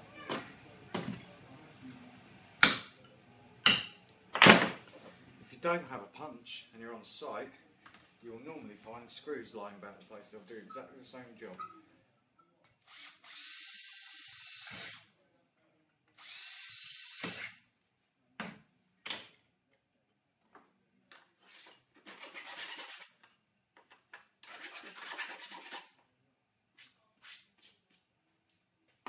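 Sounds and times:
cordless drill drilling steel: 0:12.8 - 0:15.0, 0:16.2 - 0:17.5
hand file rasping on metal: 0:22.0 - 0:23.2, 0:24.4 - 0:25.9.

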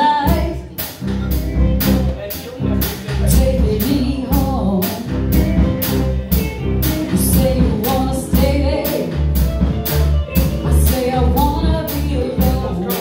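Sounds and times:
woman singing: 0:00.0 - 0:01.0, 0:03.3 - 0:05.2, 0:07.1 - 0:09.4, 0:10.5 - 0:13.0
live band playing: 0:00.0 - 0:13.0
drum beat: 0:00.3 - 0:13.0.

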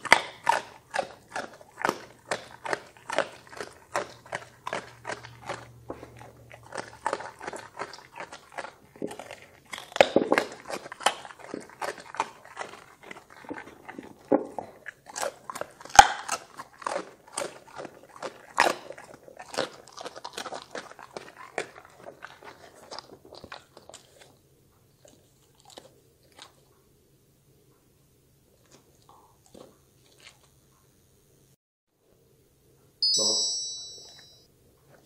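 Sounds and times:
dog crunching and chewing: 0:00.0 - 0:27.0, 0:28.5 - 0:30.8.

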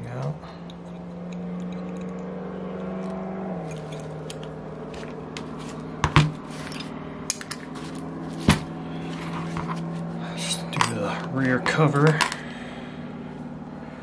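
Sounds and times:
steady low hum: 0:00.0 - 0:14.0
small metal clicks and knocks: 0:00.7 - 0:04.6
engine set down on mat: 0:05.0 - 0:09.9.

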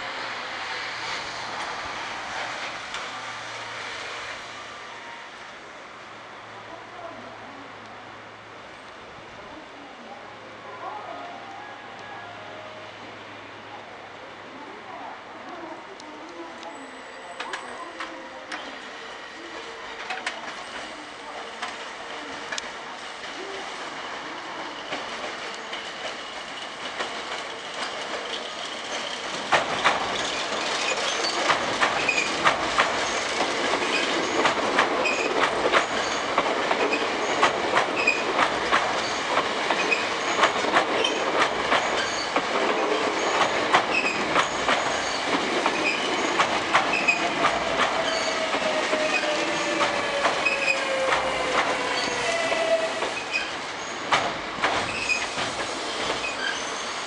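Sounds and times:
train wheels clacking over joints: 0:24.8 - 0:57.0
train motors whining: 0:29.6 - 0:56.8.

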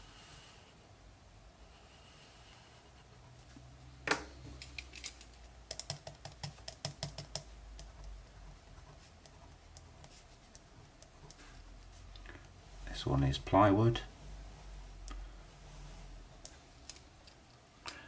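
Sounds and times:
pen tip tapping on paper: 0:05.7 - 0:08.0.

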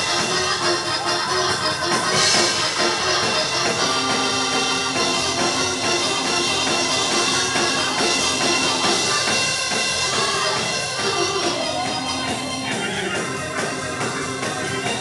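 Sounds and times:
drum kit beat: 0:00.0 - 0:15.0
organ chords: 0:00.0 - 0:15.0.

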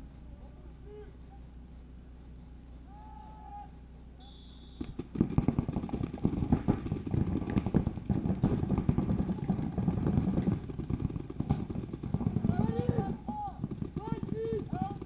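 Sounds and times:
short high beep: 0:04.2 - 0:04.8
paintball markers firing rapidly: 0:04.8 - 0:15.0.

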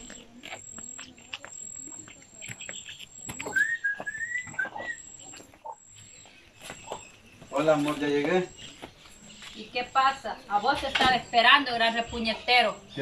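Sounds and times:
flip-flop footsteps on dirt: 0:00.0 - 0:10.0
high whistle: 0:03.5 - 0:05.0.

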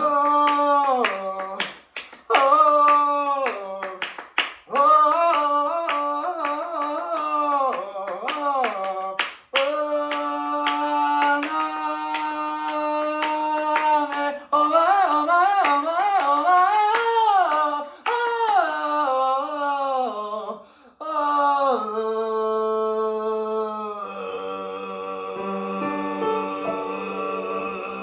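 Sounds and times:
hand claps: 0:00.0 - 0:18.8
tenor singing: 0:04.7 - 0:28.0.

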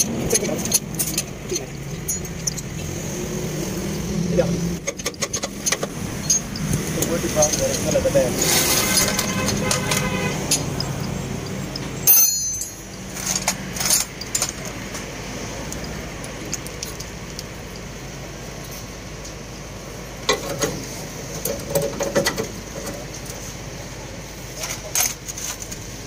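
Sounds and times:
metal-on-metal clinks: 0:00.0 - 0:02.8, 0:04.9 - 0:14.8.

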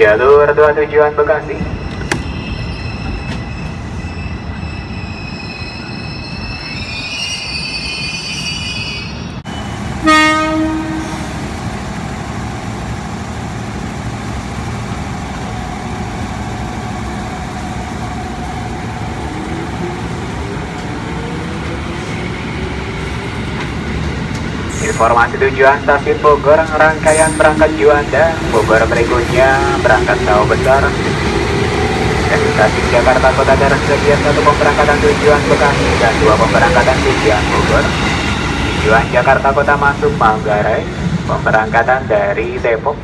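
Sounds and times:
train cars rumbling on track: 0:00.0 - 0:43.0
train horn blast: 0:10.0 - 0:11.2.

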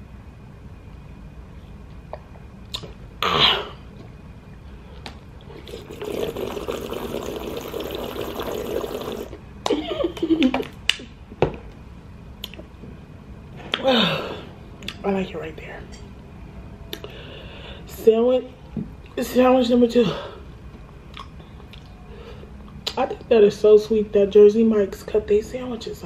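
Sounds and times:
gulping water from a bottle: 0:05.5 - 0:09.4.

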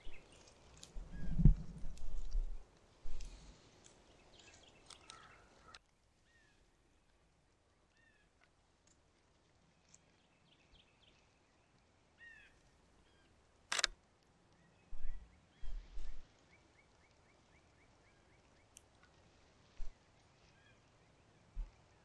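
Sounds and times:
songbirds chirping: 0:00.0 - 0:22.0
dull low thumps: 0:01.0 - 0:02.6
camera shutter click: 0:13.7 - 0:13.9.

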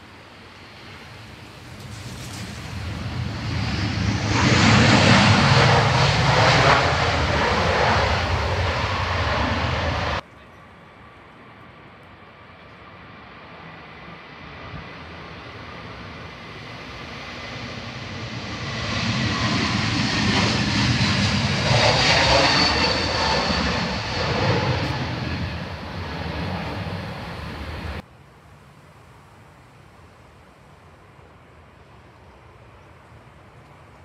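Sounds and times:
jet engines on take-off: 0:00.0 - 0:10.2, 0:11.2 - 0:28.1.

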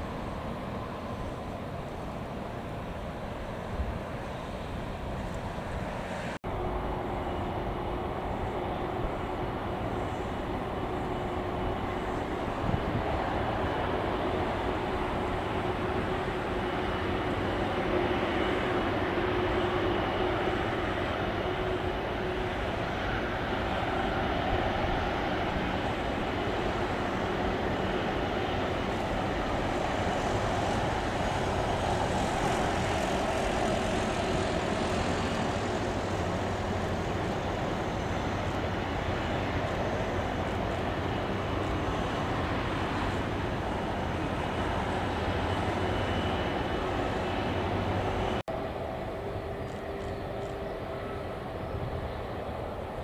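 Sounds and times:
jet engines running: 0:00.0 - 0:53.0.

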